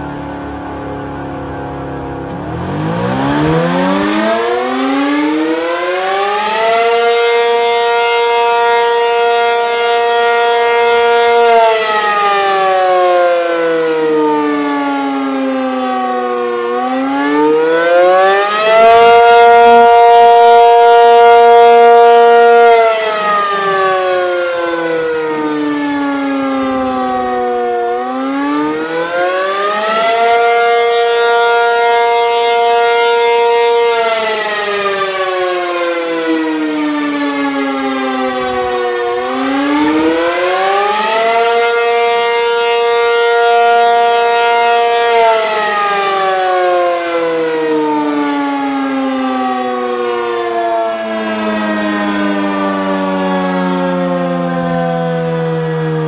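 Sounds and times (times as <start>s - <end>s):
warning siren wailing: 0.0s - 56.0s.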